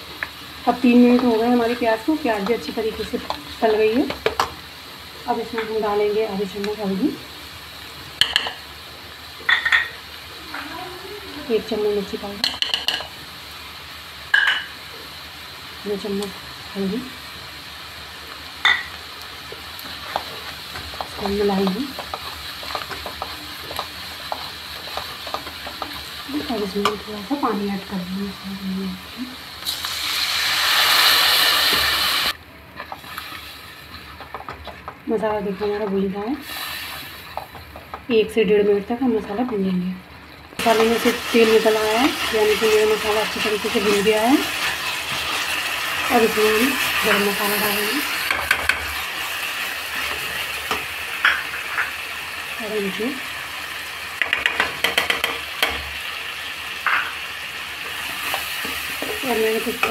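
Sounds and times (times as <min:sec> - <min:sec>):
water hissing in hot oil: 0:13.2 - 0:34.4, 0:36.2 - 0:37.9, 0:40.6 - 0:54.3
plastic spoon stirring masala: 0:19.8 - 0:26.2.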